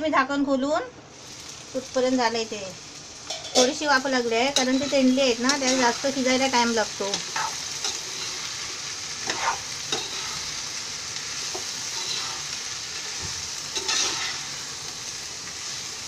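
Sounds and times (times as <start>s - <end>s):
vegetables sizzling in hot oil: 1.0s - 16.0s
metal spatula scraping pan: 4.5s - 6.4s, 7.0s - 8.6s, 9.2s - 10.6s, 11.4s - 14.6s.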